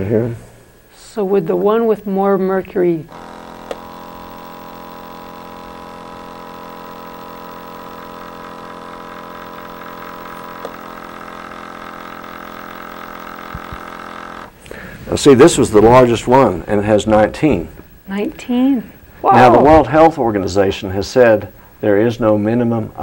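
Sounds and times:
small air pump humming: 0:00.0 - 0:23.0.

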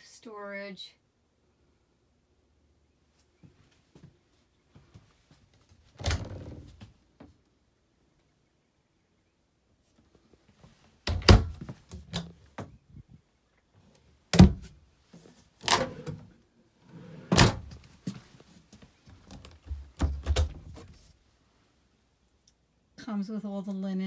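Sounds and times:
cabinet doors and drawers shutting: 0:14.4 - 0:14.7, 0:15.6 - 0:16.3, 0:16.9 - 0:17.8.

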